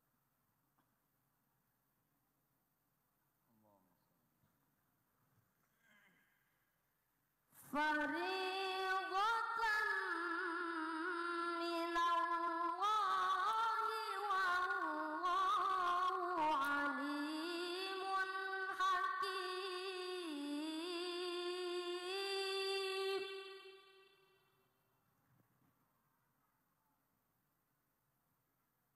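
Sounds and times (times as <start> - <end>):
boy reciting melodically: 7.7 - 24.1.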